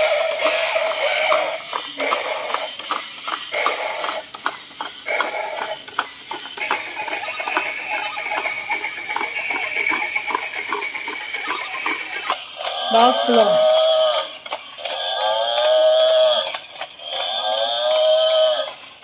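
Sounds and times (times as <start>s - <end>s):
toy walking mechanism clicking: 0.0s - 19.0s
electronic sound from small speaker: 6.7s - 13.8s.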